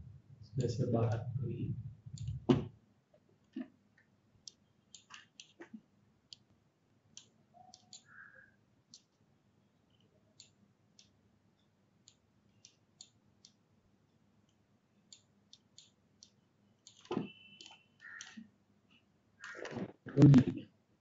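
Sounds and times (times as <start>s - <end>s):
computer mouse clicks: 2.1s - 2.5s, 4.4s - 6.5s, 7.2s - 9.2s, 12.0s - 13.6s, 14.5s - 18.4s, 19.4s - 19.9s.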